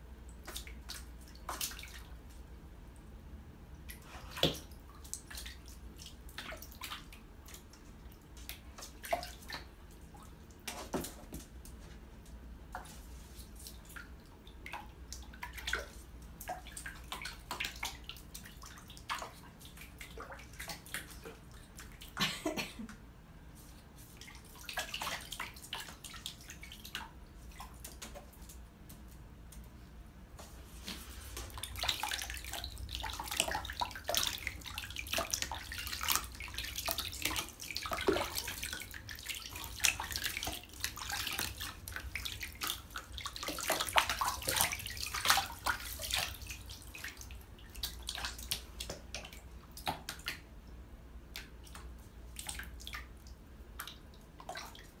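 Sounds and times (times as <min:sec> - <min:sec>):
low steady hum: 0:00.0 - 0:55.0
bathwater splashing: 0:00.4 - 0:02.3, 0:12.8 - 0:22.3, 0:23.6 - 0:28.7, 0:30.4 - 0:50.5.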